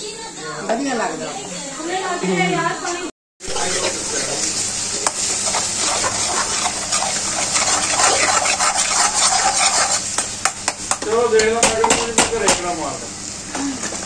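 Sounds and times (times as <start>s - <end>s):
metal spatula scraping: 3.4s - 10.2s
sauce sizzling and bubbling: 3.4s - 11.0s.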